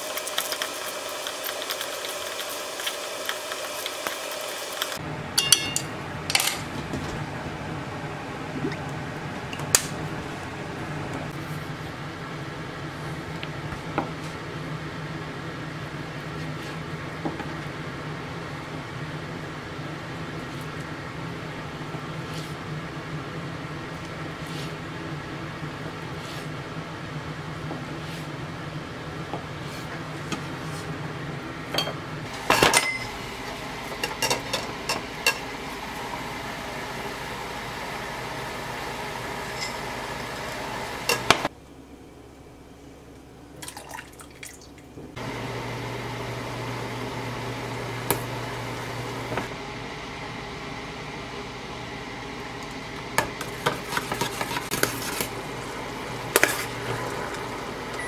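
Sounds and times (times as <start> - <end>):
ladle and bowl clinking on saucepan: 5.4 - 6.7, 31.8 - 33.1.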